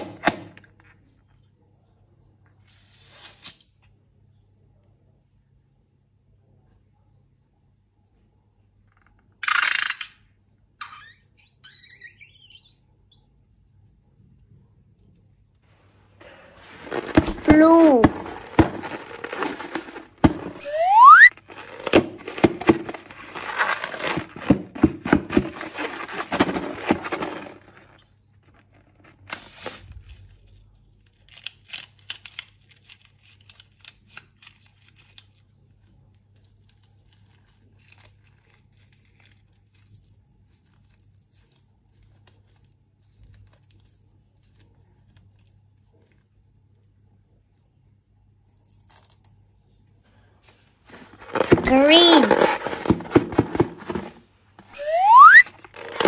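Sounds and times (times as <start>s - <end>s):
short rising squeak: 10.8s - 12.7s, 20.6s - 21.3s, 54.8s - 55.5s
plastic crinkling: 16.2s - 20.6s, 21.3s - 28.0s.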